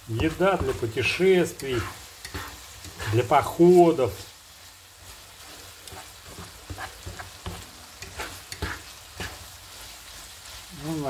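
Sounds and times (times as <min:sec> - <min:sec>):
spatula scraping and knocking pan: 0:00.0 - 0:03.8, 0:05.4 - 0:09.9
food sizzling in a frying pan: 0:00.0 - 0:11.0.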